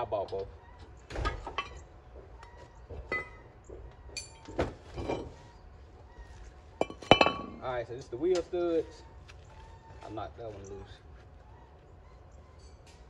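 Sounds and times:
metal knocks and clinks: 1.2 - 1.9, 4.1 - 5.4, 6.8 - 7.6.

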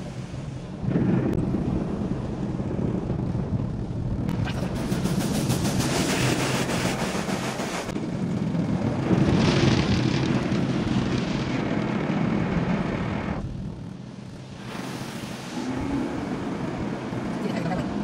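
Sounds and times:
car wash brushes washing: 4.3 - 8.0, 14.6 - 16.4
water spray on car: 4.4 - 8.0, 14.6 - 17.8.

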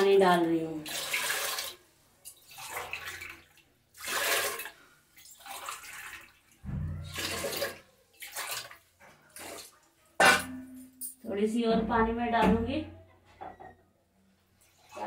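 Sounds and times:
water pouring into a metal pot: 0.8 - 10.5.

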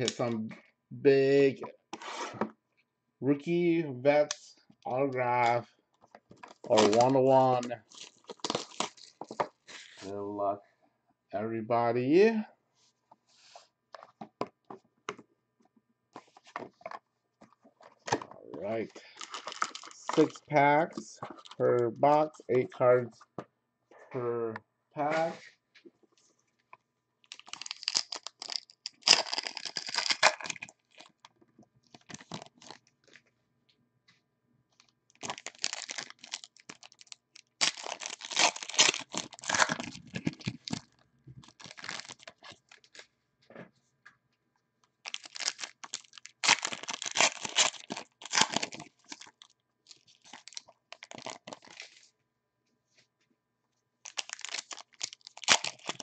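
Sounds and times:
foil wrappers tearing and crinkling: 6.6 - 10.0, 19.0 - 20.3, 27.3 - 31.2, 35.2 - 40.9, 41.5 - 43.0, 45.0 - 52.0, 54.1 - 56.0.

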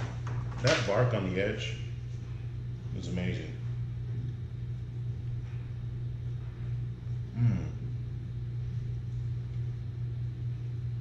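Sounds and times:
low hum: 0.0 - 11.0
man murmuring: 7.3 - 8.0.

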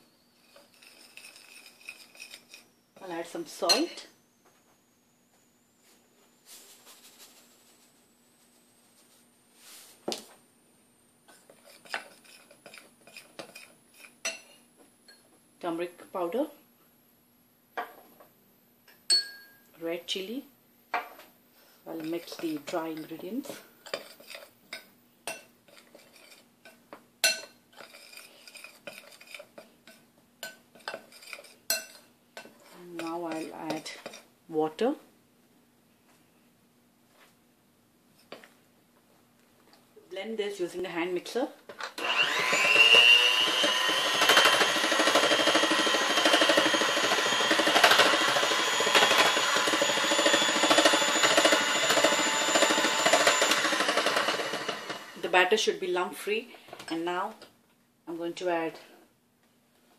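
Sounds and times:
metal spoon scraping glass bowl: 0.4 - 4.0, 11.5 - 14.6, 21.9 - 34.2
electric hand mixer whisking batter: 42.0 - 55.3.

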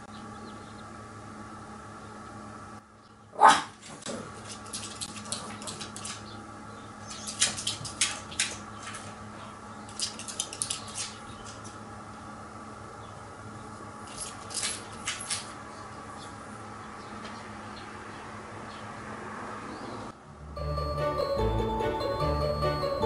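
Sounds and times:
faint steady hum: 0.0 - 18.8
dog barking: 3.4 - 3.8
light clicks and scratches: 3.8 - 6.3, 9.9 - 11.8.

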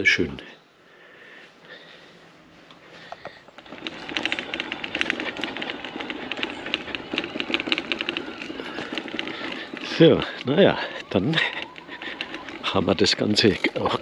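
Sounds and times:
wheels rattling over flagstones: 2.9 - 14.0.

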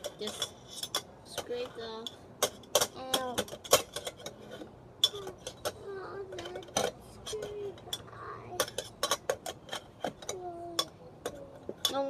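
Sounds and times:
child making wordless sounds: 5.1 - 8.7, 10.3 - 11.6.

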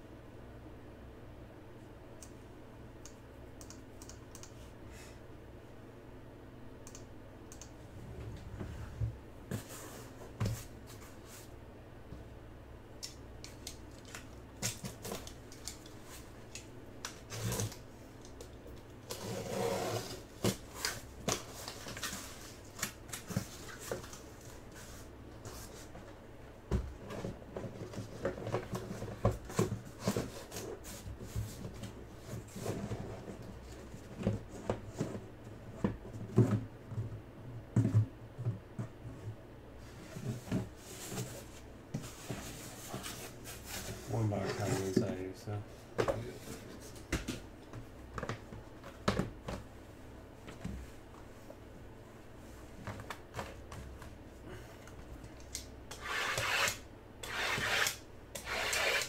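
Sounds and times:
low steady hum: 0.0 - 59.0
box cutter slitting packing tape: 55.9 - 59.0.

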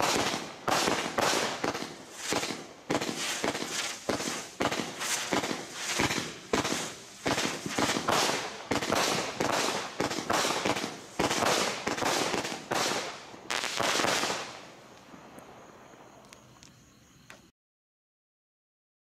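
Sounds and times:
firework shots firing: 0.0 - 14.7
firework bursts overhead: 0.0 - 16.7.

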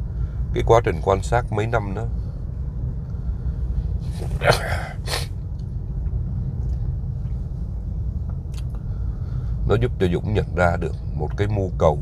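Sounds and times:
steady low rumble: 0.0 - 12.0
man coughing: 4.2 - 5.3.

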